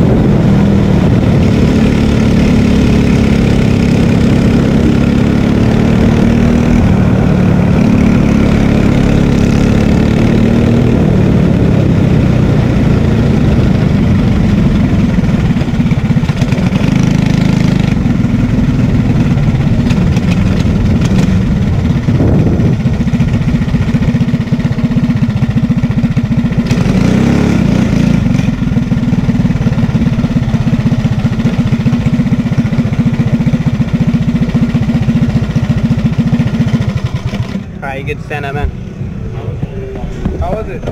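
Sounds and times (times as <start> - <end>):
kart engine idling: 0.0 - 40.9.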